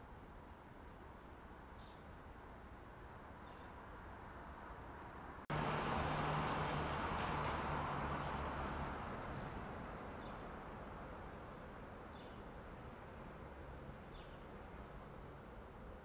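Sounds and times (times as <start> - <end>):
vehicle passing close: 5.5 - 10.9.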